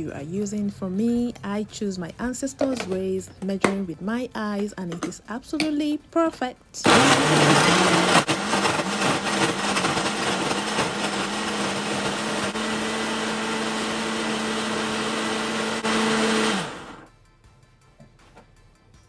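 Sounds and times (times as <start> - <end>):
blender motor running: 6.8 - 17.1
fruit churning: 6.9 - 17.0.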